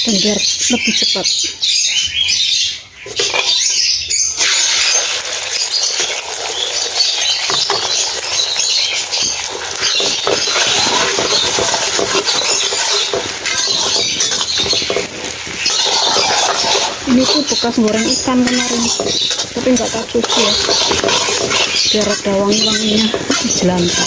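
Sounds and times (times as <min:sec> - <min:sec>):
egg sizzling in hot oil: 0:04.3 - 0:24.0
metal spatula scraping wok: 0:09.0 - 0:24.0.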